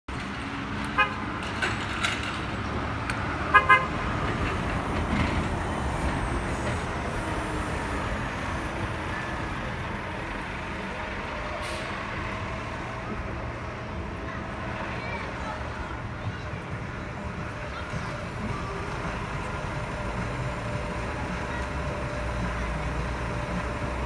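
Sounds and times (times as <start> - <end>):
bus passing with engine rumble: 0.1 - 24.0
street traffic: 0.1 - 24.0
vehicle horn toots: 3.5 - 3.9.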